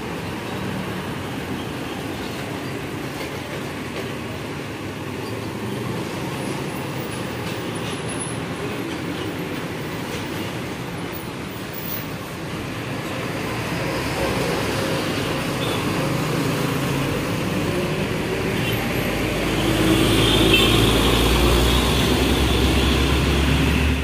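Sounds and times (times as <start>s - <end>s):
diesel trucks passing: 0.0s - 24.0s
motorcycles passing: 13.0s - 24.0s.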